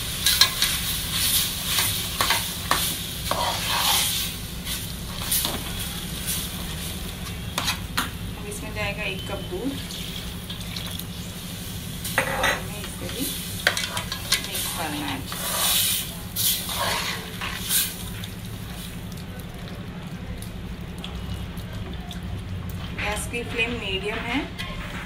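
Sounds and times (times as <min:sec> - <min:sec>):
spoon scraping metal pot: 0:01.7 - 0:04.2, 0:07.4 - 0:08.0, 0:16.5 - 0:17.8.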